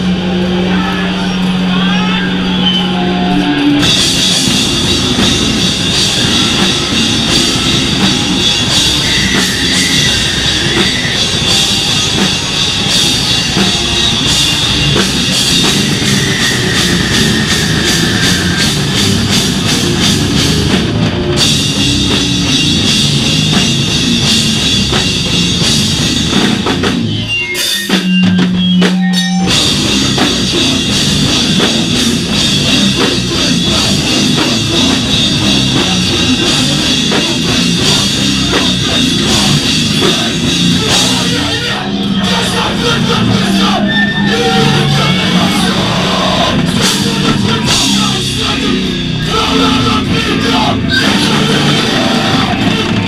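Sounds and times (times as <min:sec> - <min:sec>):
drum kit pounding: 0:00.0 - 0:53.0
hardcore band playing loud: 0:00.0 - 0:53.0.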